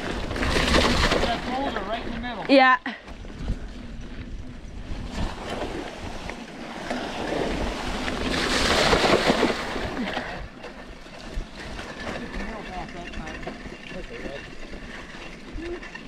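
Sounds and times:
bike tyres splashing through water: 5.4 - 10.5.

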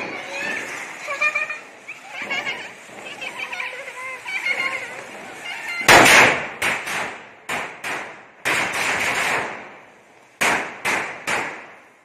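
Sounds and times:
fizzing crackle: 0.0 - 5.8
firecrackers bursting: 0.0 - 12.0.

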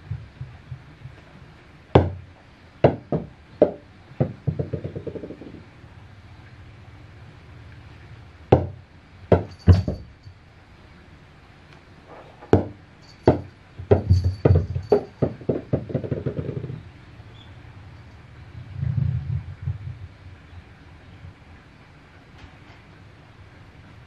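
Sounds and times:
rubber balls bouncing on wooden floor: 2.0 - 2.2, 2.8 - 5.6, 8.5 - 10.1, 12.5 - 16.8.

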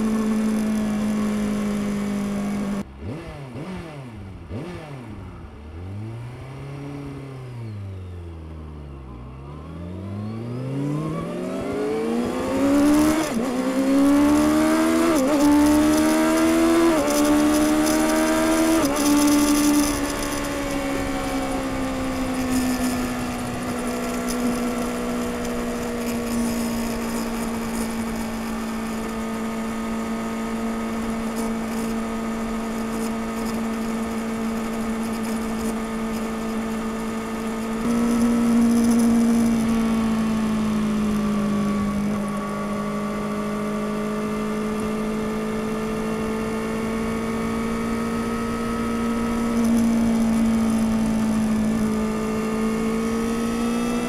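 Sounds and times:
motorcycle engine revving: 0.0 - 8.5, 9.4 - 54.0.

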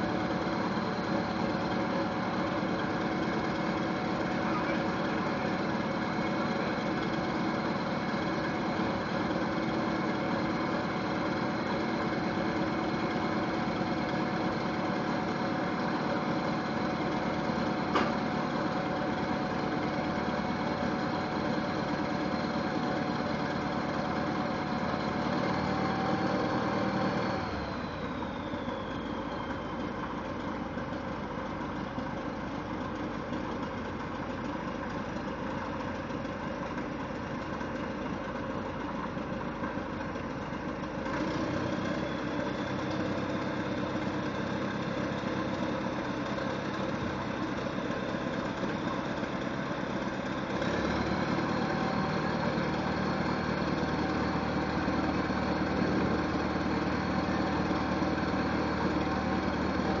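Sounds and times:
diesel engine running: 0.0 - 60.0
high whine winding down: 25.4 - 30.4.

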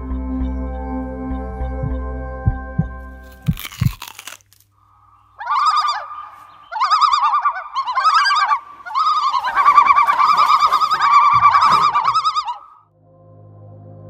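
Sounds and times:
low thumps: 0.1 - 4.1
high bird-like warbling call: 5.0 - 12.8
brief rustle: 9.2 - 12.5.

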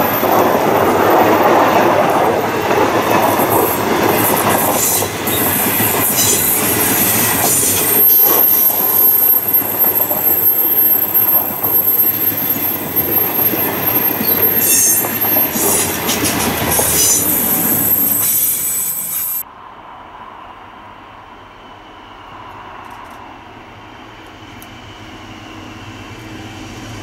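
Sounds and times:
train wheels clattering over rail: 0.3 - 8.0, 9.5 - 19.2
high-pitched wheel squeal: 4.6 - 19.4.

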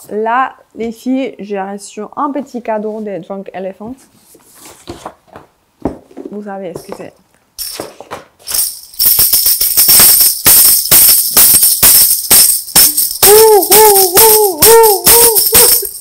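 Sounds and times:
tambourine jingling: 7.6 - 16.0.

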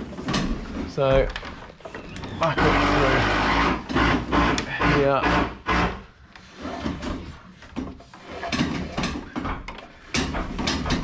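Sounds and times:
cable scraping through timber: 1.8 - 5.4, 6.3 - 9.3.

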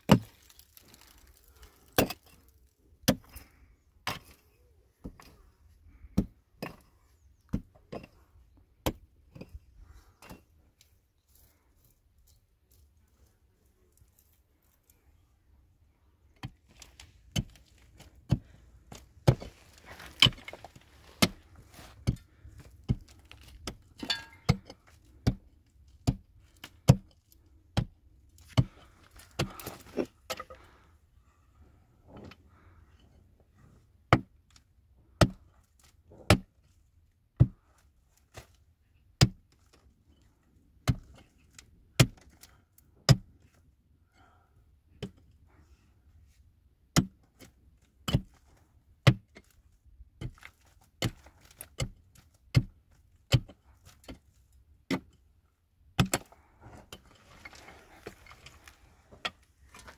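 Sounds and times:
rustling and scraping: 16.5 - 25.2, 28.3 - 30.8, 56.2 - 59.9.

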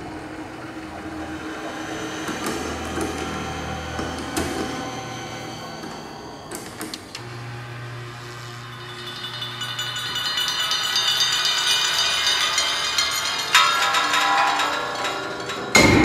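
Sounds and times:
ringing metallic tones: 1.2 - 16.0
fast rattle of metal strokes: 8.6 - 16.0.

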